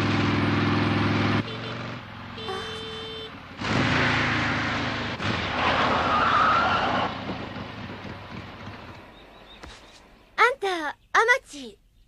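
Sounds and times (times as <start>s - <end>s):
motorcycle engine: 0.0s - 10.3s
tyre squeal: 5.6s - 7.1s.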